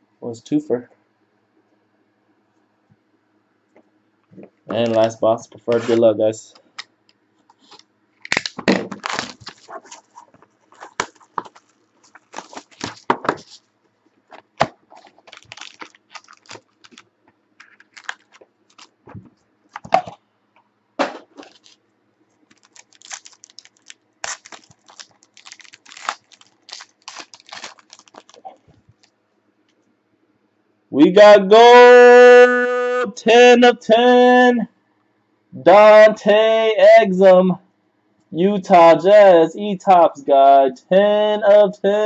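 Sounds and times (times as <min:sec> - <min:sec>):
packaging tearing: 0:07.6 - 0:13.6, 0:14.3 - 0:19.0, 0:21.4 - 0:21.8, 0:22.5 - 0:29.1
wrapper crinkling: 0:07.6 - 0:13.7, 0:14.3 - 0:19.9, 0:21.3 - 0:21.8, 0:22.4 - 0:29.1.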